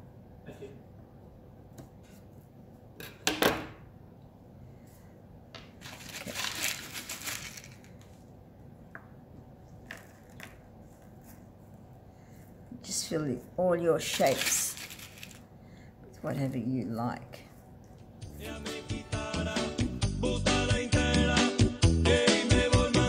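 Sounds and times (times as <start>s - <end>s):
rustling and crinkling: 5.7s - 8.3s, 14.0s - 15.5s.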